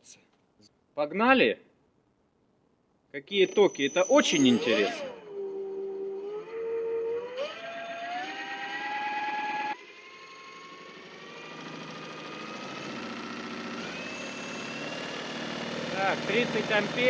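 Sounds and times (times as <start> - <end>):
electric motor propeller whining: 4.0 - 17.0.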